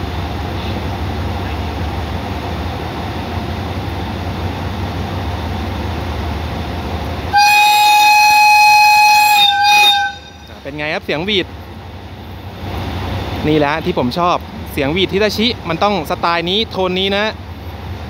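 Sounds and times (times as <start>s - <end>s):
locomotive engine rumble: 0.0s - 18.0s
locomotive horn high note: 7.3s - 10.6s.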